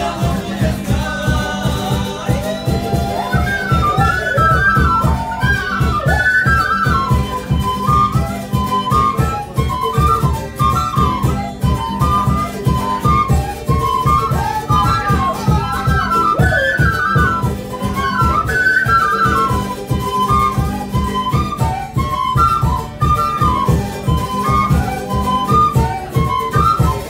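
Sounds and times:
bass drum beat: 0.0s - 5.2s
charango strumming: 0.0s - 27.0s
strummed acoustic guitar: 0.0s - 27.0s
end-blown flutes melody: 2.0s - 27.0s.

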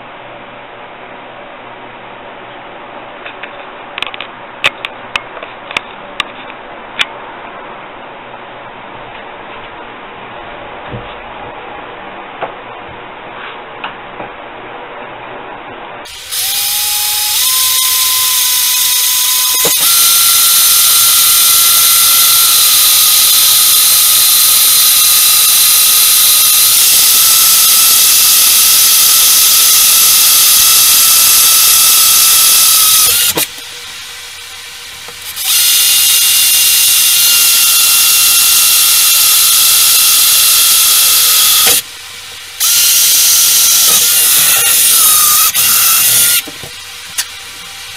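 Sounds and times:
electric drill whining: 16.1s - 47.8s.

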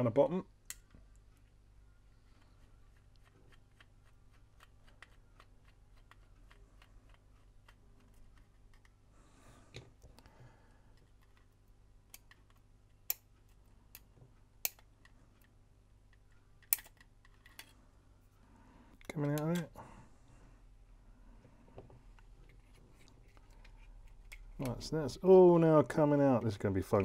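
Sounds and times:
screwdriver and plastic parts clicking: 12.1s - 17.8s.

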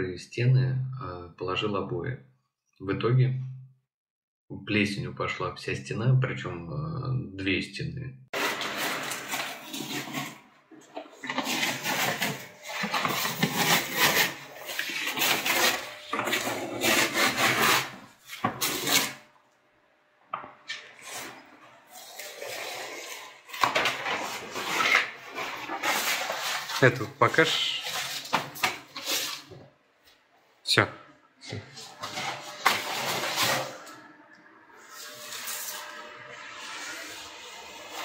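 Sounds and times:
wallpaper tearing and crackling: 8.4s - 19.3s, 20.7s - 29.7s, 31.8s - 34.1s, 34.8s - 38.0s.

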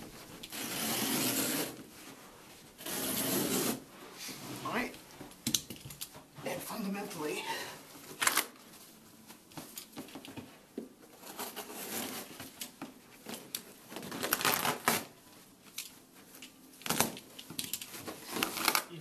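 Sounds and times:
knife cutting through carpet: 0.5s - 1.8s, 2.8s - 3.8s.

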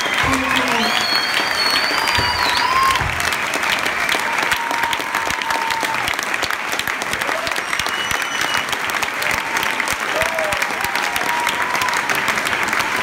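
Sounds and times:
long whistles: 0.0s - 3.0s, 7.6s - 8.8s
audience clapping: 0.0s - 13.0s.

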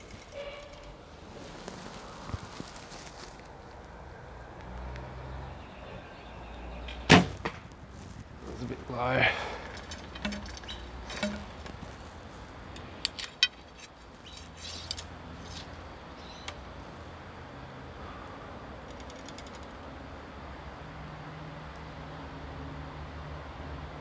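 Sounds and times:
faint steady background noise: 0.0s - 24.0s
sharp clicks and light rattles: 9.6s - 11.8s, 18.8s - 19.8s.

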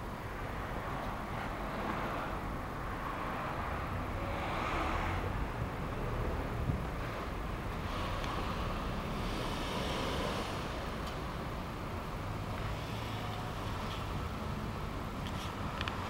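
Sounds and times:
cars passing on a road: 0.0s - 16.0s
wind rumble on microphone: 5.0s - 8.5s.

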